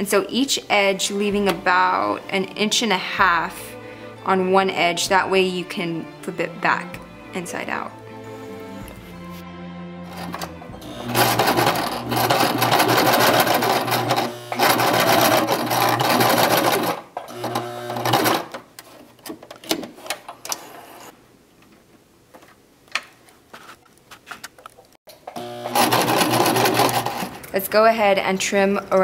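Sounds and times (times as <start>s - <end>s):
sewing machine stitching: 10.1s - 18.6s, 25.4s - 27.4s.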